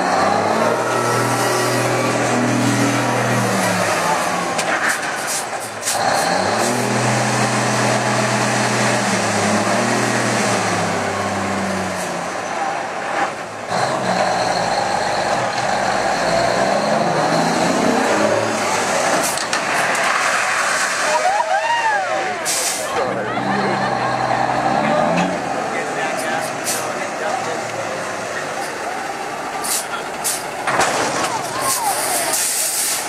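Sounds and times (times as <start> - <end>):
diesel truck engine revving: 0.0 - 21.2, 22.3 - 33.0.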